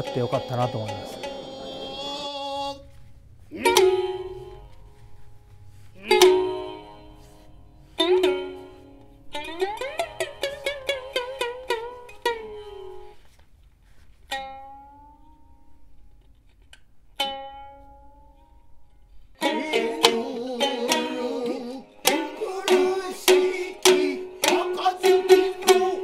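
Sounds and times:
shamisen being plucked: 0:00.0 - 0:26.0.

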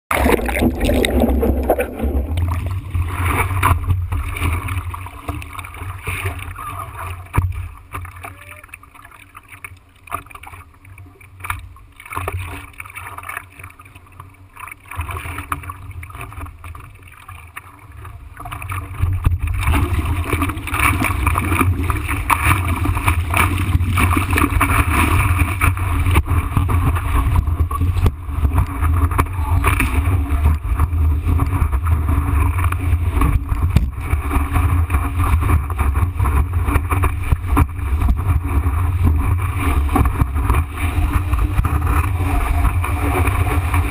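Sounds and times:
rushing water and wind buffeting: 0:00.1 - 0:08.8, 0:18.0 - 0:43.9
water lapping against surfboard: 0:00.1 - 0:43.9.

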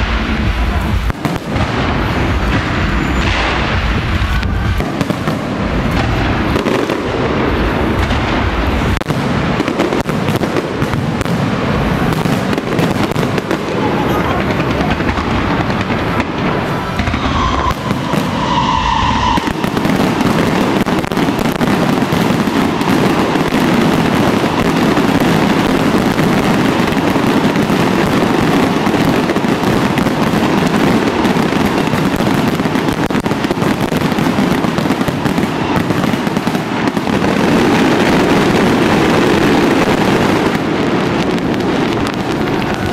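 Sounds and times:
fireworks bursting: 0:00.0 - 0:42.9.

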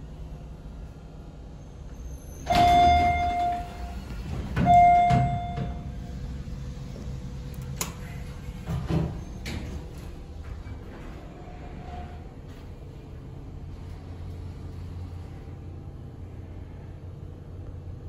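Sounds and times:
low steady rumble: 0:00.0 - 0:18.0
elevator chime dings: 0:02.5 - 0:06.0.

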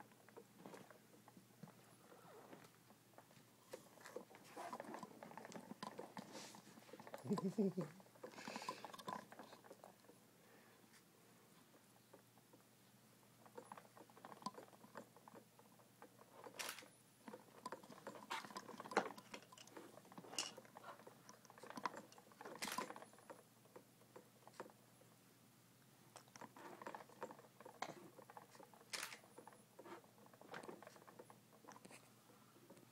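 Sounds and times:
plastic toys clicking and rattling: 0:02.6 - 0:10.2, 0:13.3 - 0:24.8, 0:26.1 - 0:32.1.

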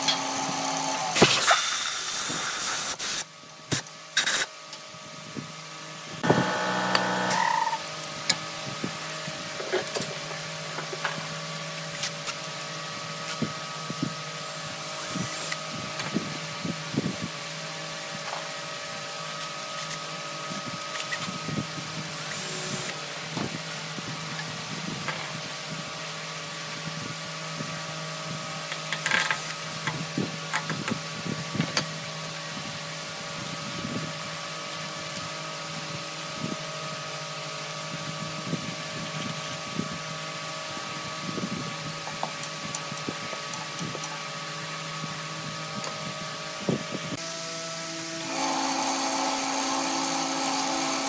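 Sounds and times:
machine hum: 0:06.0 - 0:08.0.

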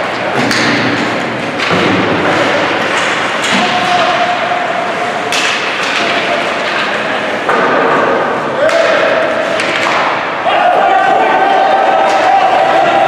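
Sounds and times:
hockey puck and stick thuds: 0:00.0 - 0:04.2, 0:05.3 - 0:10.4.

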